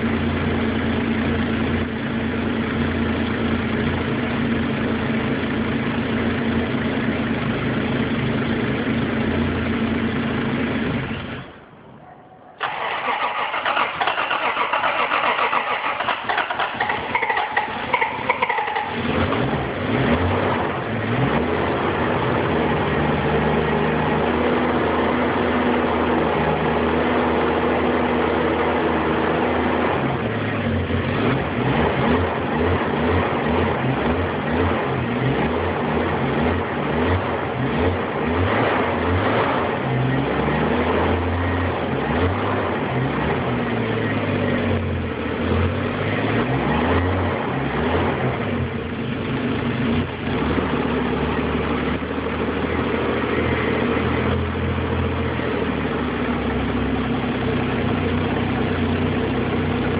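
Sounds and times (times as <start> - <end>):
engine revving: 12.6 - 59.9.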